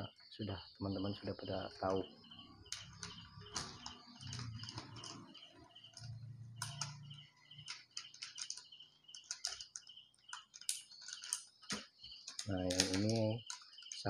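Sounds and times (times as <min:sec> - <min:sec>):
high chirping: 0:00.0 - 0:14.0
plastic bags crinkling: 0:02.4 - 0:07.0, 0:07.6 - 0:14.0
plastic boxes clicking: 0:02.7 - 0:14.0.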